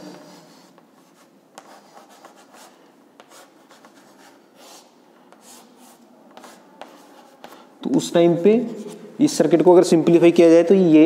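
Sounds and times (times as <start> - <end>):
chalk drawing on blackboard: 0.0 - 7.7.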